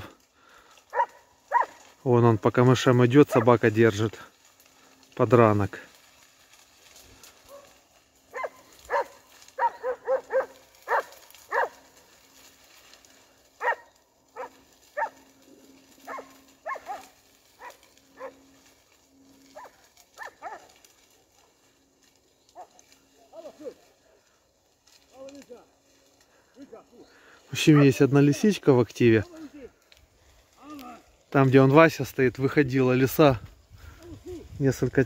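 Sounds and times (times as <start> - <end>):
dog barking: 0.9 - 1.8, 3.3 - 3.6, 7.5 - 11.8, 13.6 - 15.2, 16.0 - 18.5, 19.6 - 20.7.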